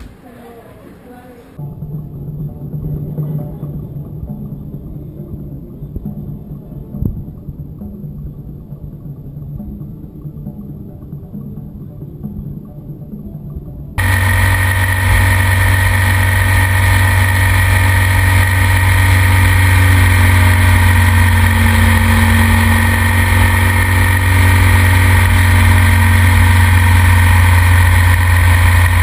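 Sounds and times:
motorcycle engine running: 14.0s - 29.0s
wind and road noise: 14.0s - 29.0s.

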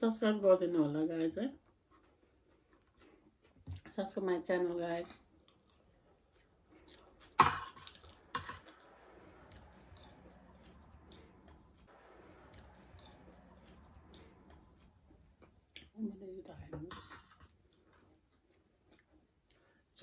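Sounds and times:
quiet chewing: 1.6s - 4.0s, 5.0s - 16.0s, 16.9s - 19.8s
spoons scraping and clinking on plates: 16.8s - 17.5s.

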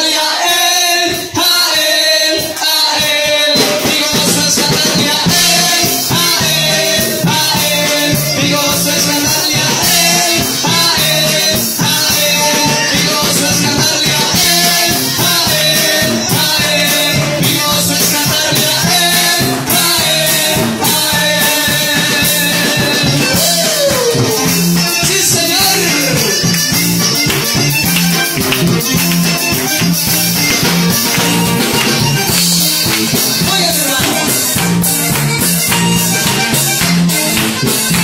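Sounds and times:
accordion: 0.0s - 38.0s
drum kit: 0.0s - 38.0s
electric guitar: 1.1s - 38.0s.

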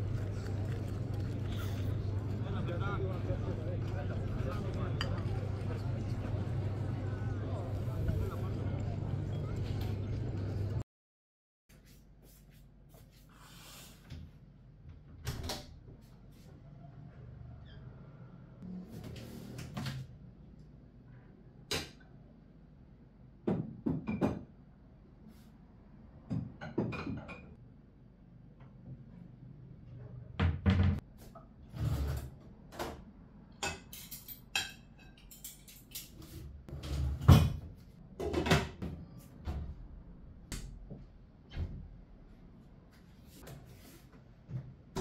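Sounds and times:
cupboard doors opening and shutting: 36.7s - 39.0s.

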